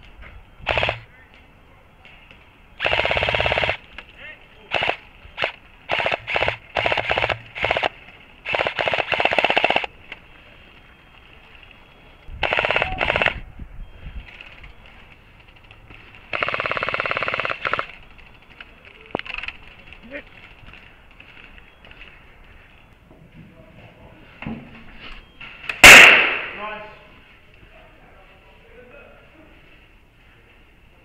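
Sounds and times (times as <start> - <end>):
airsoft guns firing bursts: 0.7 - 1.0, 2.8 - 3.8, 4.7 - 9.9, 12.4 - 13.4, 16.3 - 18.0, 25.8 - 26.6.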